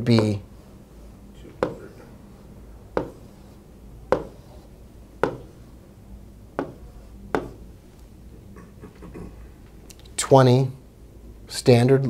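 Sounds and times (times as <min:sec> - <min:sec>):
stylus tapping on glass screen: 0:01.6 - 0:01.8, 0:03.0 - 0:03.2, 0:04.1 - 0:04.4, 0:05.2 - 0:05.5, 0:06.6 - 0:07.6.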